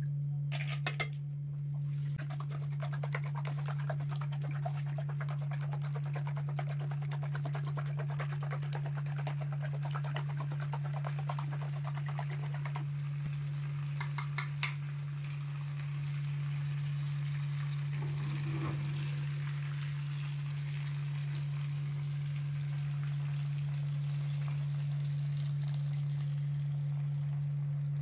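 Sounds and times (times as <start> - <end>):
low hum: 0.0 - 28.0
spoon beating eggs in steel bowl: 2.2 - 12.8.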